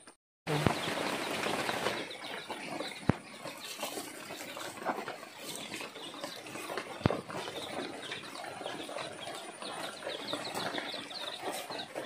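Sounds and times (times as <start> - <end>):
leaves rustling and crackling: 0.5 - 6.0.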